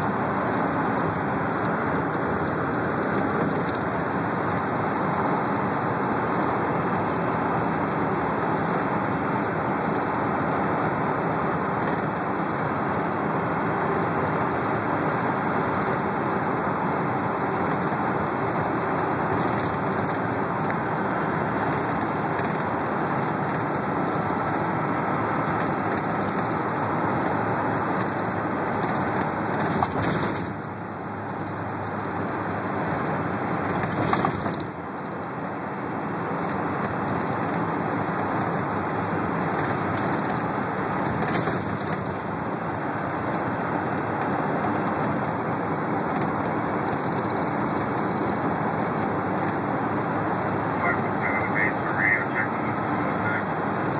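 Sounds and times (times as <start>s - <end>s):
bus road and engine noise: 0.0s - 53.9s.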